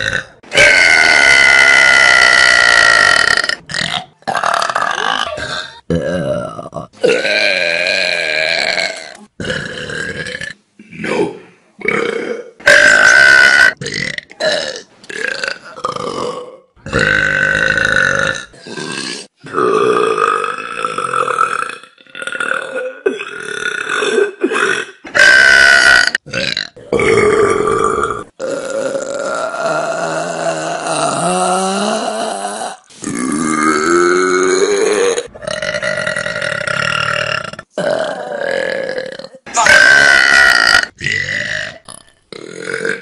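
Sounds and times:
young women burping: 4.3s - 10.2s.

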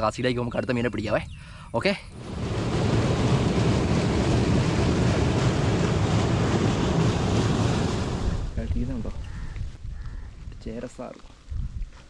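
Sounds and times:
water gushing into canal: 2.1s - 9.0s.

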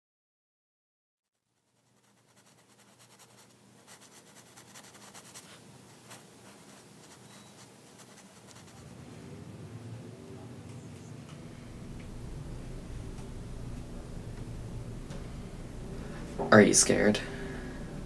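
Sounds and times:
fine scratching and crackling: 1.6s - 9.0s
low steady hum: 1.6s - 18.0s.

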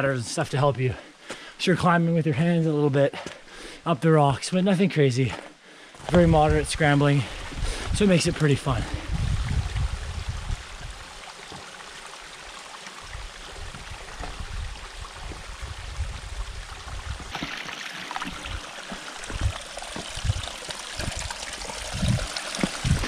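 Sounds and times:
stream trickling over rocks: 6.0s - 23.0s
low underwater thumps: 18.2s - 23.0s.

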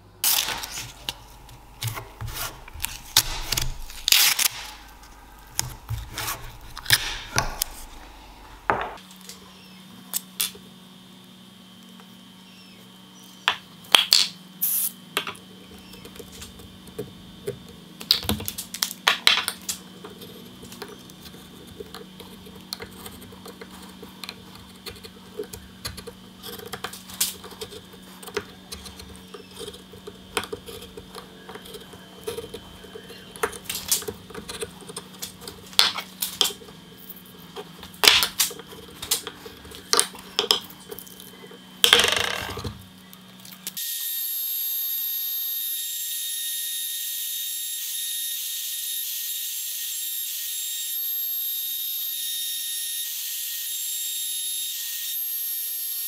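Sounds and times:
steady low hum: 0.0s - 43.8s.

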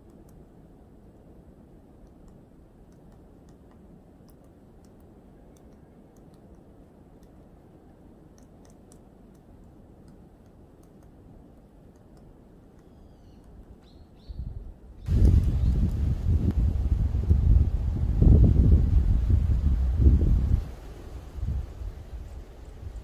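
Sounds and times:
woodpecker tapping on wood: 2.1s - 7.4s
high bird calls: 12.8s - 16.0s
wind noise rumble: 14.3s - 23.0s
loud low rumble: 15.1s - 21.8s.

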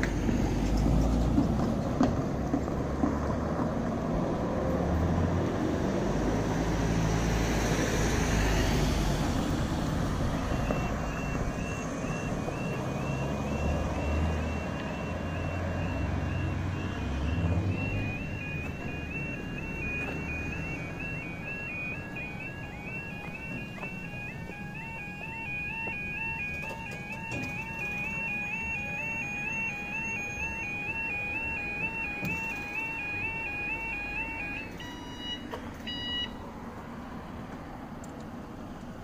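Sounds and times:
vehicle passing by: 0.0s - 26.3s
road traffic: 0.0s - 39.0s
two-tone electronic warning alarm: 9.8s - 36.4s.

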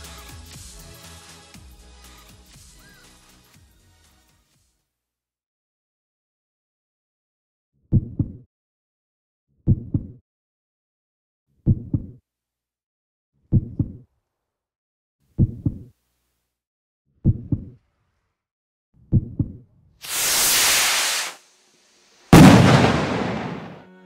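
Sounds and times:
heartbeat thumps: 7.9s - 8.4s, 9.7s - 10.2s, 11.7s - 12.1s, 13.5s - 14.0s, 15.4s - 15.8s, 17.2s - 17.7s, 19.1s - 19.6s
loud hit: 22.4s - 23.8s.

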